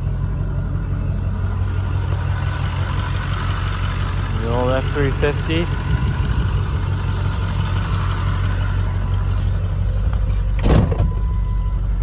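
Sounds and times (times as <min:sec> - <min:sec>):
pickup engine idling: 0:00.0 - 0:12.0
loud thump: 0:10.5 - 0:11.2.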